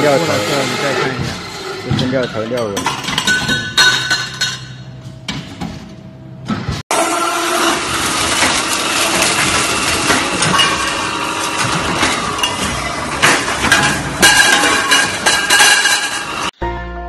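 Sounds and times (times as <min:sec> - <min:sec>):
saw blade cutting steel tubes: 0:00.0 - 0:02.8, 0:07.5 - 0:16.5.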